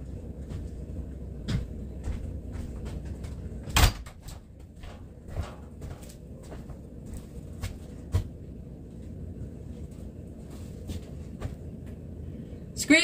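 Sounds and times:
door banging shut: 0:03.7 - 0:04.1.

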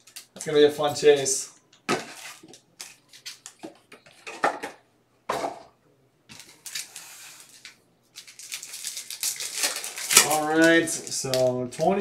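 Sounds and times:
foil wrappers crinkling and clacking: 0:06.3 - 0:12.0.

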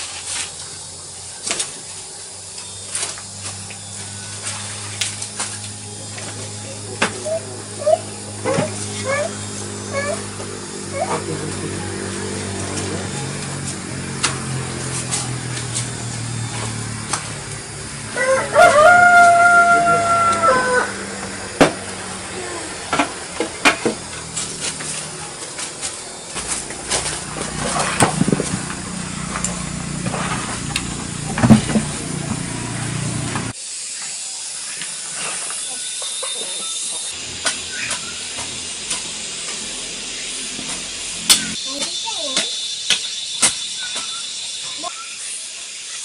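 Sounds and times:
hoe scraping and chopping soil: 0:23.0 - 0:33.6
steady hiss: 0:33.4 - 0:46.0.

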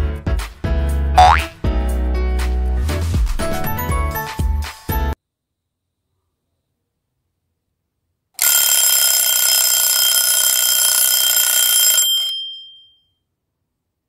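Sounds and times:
alarm clock ringing: 0:08.4 - 0:13.0.

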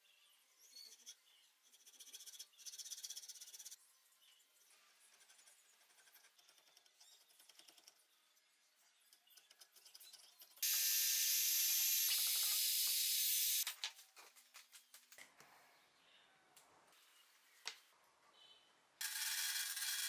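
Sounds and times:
router high-pitched whine: 0:10.6 - 0:13.6.

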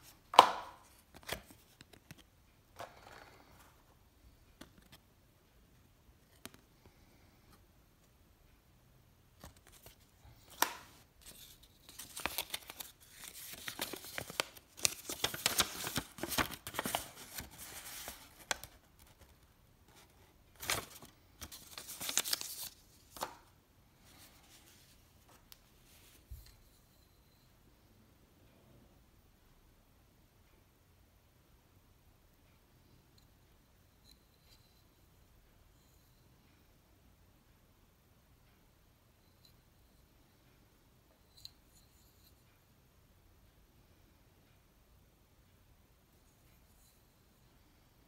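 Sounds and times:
paper and card rustling: 0:00.4 - 0:02.3, 0:09.4 - 0:23.5.

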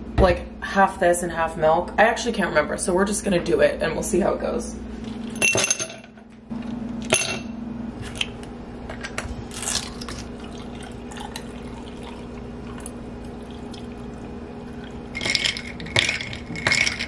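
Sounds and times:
coffee pouring over ice: 0:09.9 - 0:17.0
ice cubes clinking into a glass: 0:15.1 - 0:17.0.

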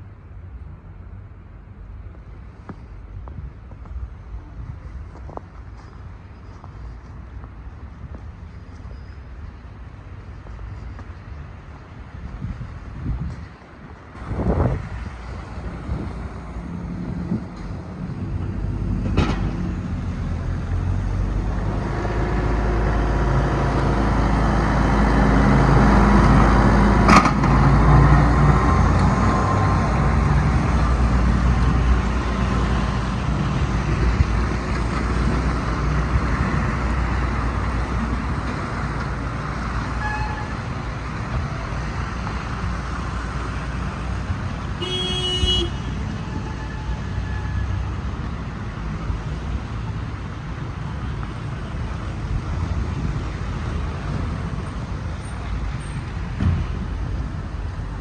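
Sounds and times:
car engines: 0:00.0 - 0:58.0
car horn toot: 0:40.0 - 0:40.6, 0:44.8 - 0:47.6.

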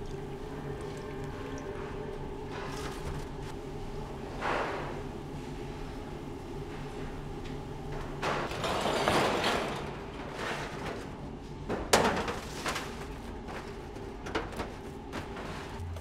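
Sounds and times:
steady machine hum: 0:00.0 - 0:16.0
metal baking tray clatter: 0:08.5 - 0:11.1, 0:11.7 - 0:13.6.

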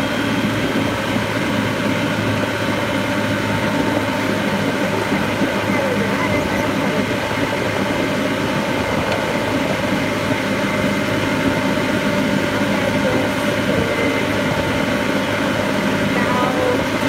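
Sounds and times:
golf cart motor hum and rattle: 0:00.0 - 0:17.0.

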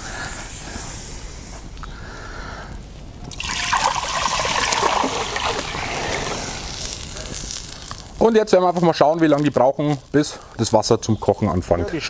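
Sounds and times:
steady background noise: 0:00.0 - 0:12.0
water pouring into a pot: 0:03.3 - 0:08.2.

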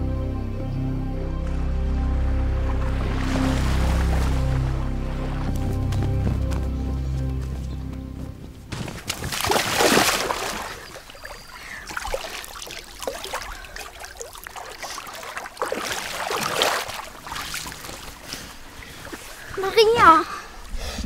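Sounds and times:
people wading through water: 0:01.4 - 0:21.0.

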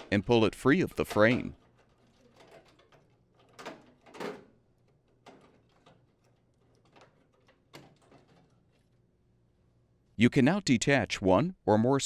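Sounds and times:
faint clicks and rattles: 0:01.0 - 0:09.1.

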